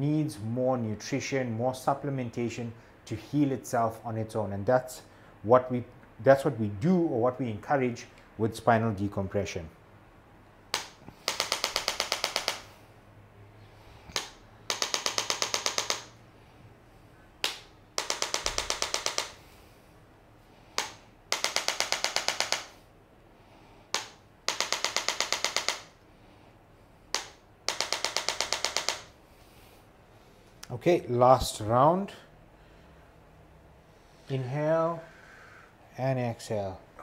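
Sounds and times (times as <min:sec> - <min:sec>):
adjusting instrument clicking: 0:14.1 - 0:16.2, 0:17.4 - 0:19.4, 0:20.8 - 0:22.7, 0:23.9 - 0:25.9, 0:27.1 - 0:29.0.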